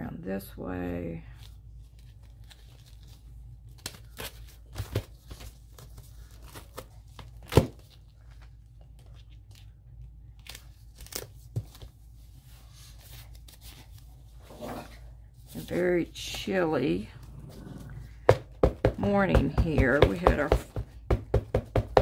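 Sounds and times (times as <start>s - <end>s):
paper rustling and crinkling: 1.3s - 16.0s
taps on paper: 18.3s - 22.0s.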